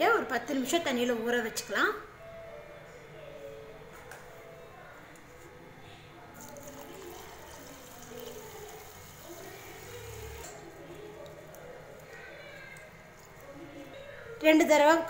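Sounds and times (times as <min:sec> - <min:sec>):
water pouring into steel bowl: 0:06.4 - 0:12.1.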